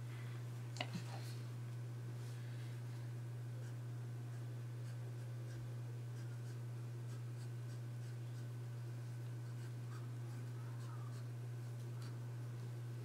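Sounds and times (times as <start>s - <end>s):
steady low hum: 0.0s - 13.0s
pen nib scratching on paper: 3.6s - 12.2s.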